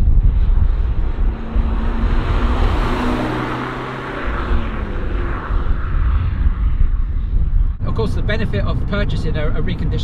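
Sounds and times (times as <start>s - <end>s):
car engine driving past: 0.7s - 6.8s.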